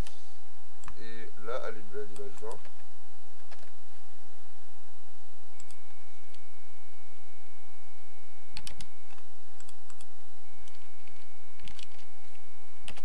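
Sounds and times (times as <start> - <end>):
faint steady hum: 0.0 - 13.0
mouse and keyboard clicks: 8.6 - 12.1.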